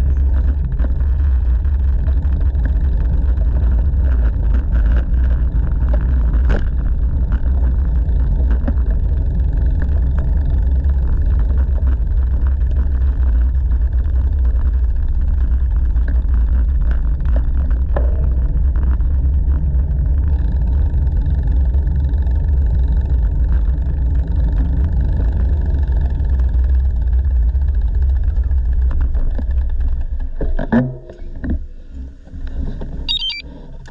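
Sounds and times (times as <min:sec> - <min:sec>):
bicycle clicks: 0:00.0 - 0:25.2.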